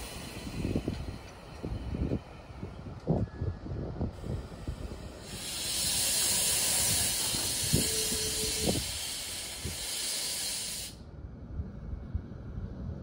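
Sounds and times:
compressed air hissing: 0.0s - 2.1s, 4.2s - 11.0s
low train rumble: 0.0s - 13.0s.

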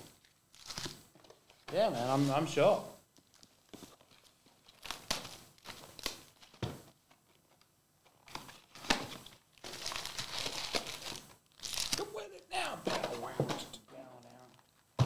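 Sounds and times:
foil card packs crinkling: 0.1s - 1.0s, 3.2s - 6.6s, 8.2s - 12.2s.

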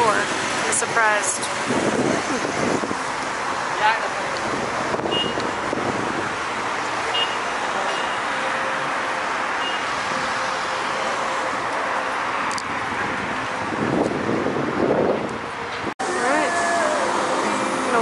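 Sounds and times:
city street traffic: 0.0s - 18.0s.

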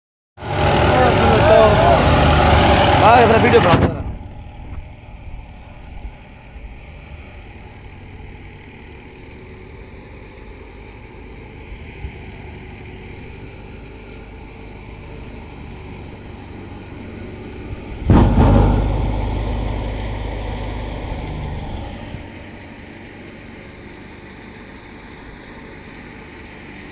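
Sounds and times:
thresher humming: 0.4s - 4.5s, 18.1s - 25.0s.

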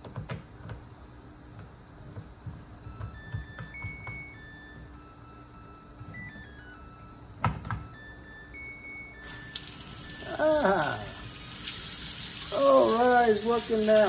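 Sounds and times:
tap water running into sink: 9.3s - 10.1s, 11.1s - 14.0s.

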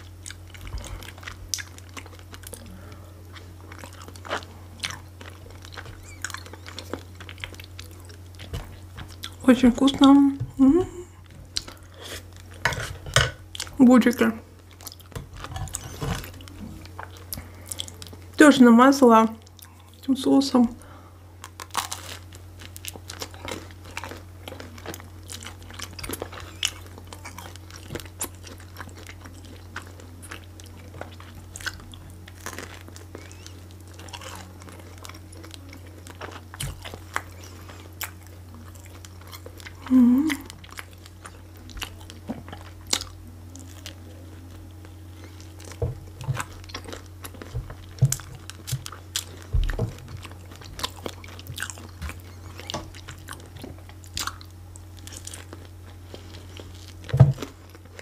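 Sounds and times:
chewing with mouth clicks: 0.0s - 9.8s, 14.6s - 18.4s, 19.4s - 20.1s, 21.4s - 58.0s
steady low hum: 0.0s - 58.0s
person humming: 10.2s - 11.2s, 39.8s - 40.5s.

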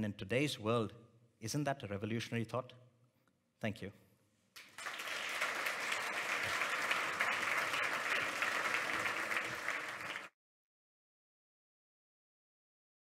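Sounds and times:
audience applauding: 4.6s - 10.4s.

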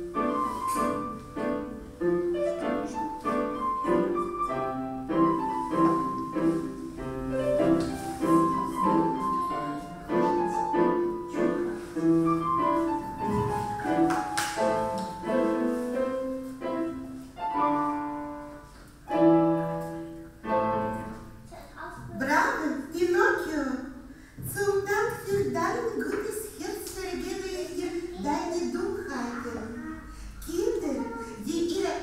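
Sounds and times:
piano melody: 0.0s - 23.2s.

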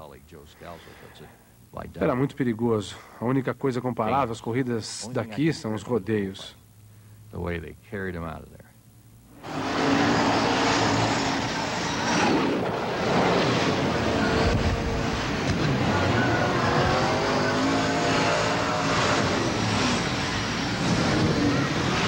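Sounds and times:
dense rushing noise: 9.4s - 22.0s
race car engines passing: 9.4s - 22.0s.

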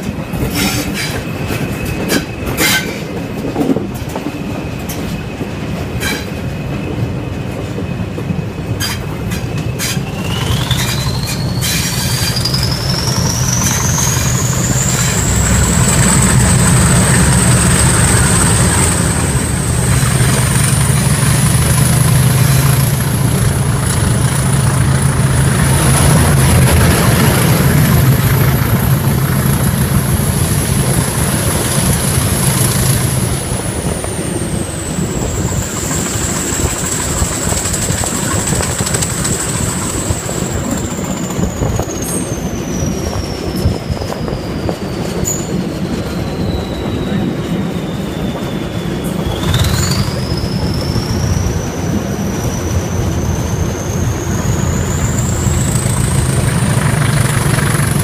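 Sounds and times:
diesel locomotive engine: 0.0s - 58.0s
wheel and rail noise: 0.0s - 58.0s
turbocharger whistle: 47.8s - 58.0s.

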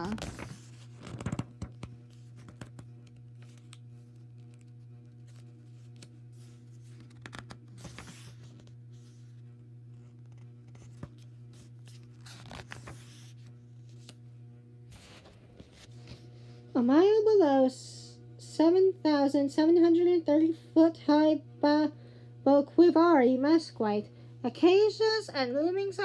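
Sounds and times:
book pages rustling: 0.0s - 14.2s, 14.9s - 16.6s
steady low hum: 0.0s - 26.0s.

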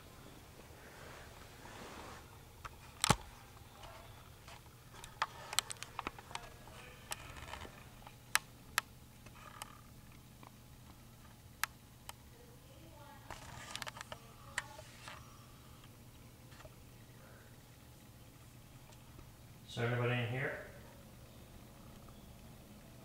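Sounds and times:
sharp clicks and light knocks: 2.6s - 12.2s.

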